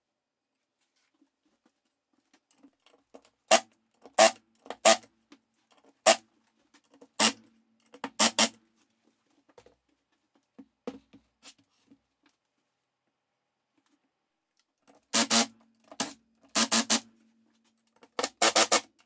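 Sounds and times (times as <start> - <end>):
impact driver driving screws: 8.1 - 8.6, 15.1 - 17.0, 18.2 - 18.9.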